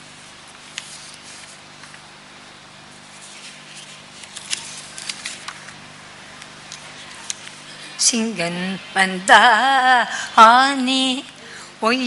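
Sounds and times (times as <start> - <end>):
electrical hum and hiss: 0.0 - 12.0
paper rustling: 0.7 - 2.0, 3.0 - 5.8.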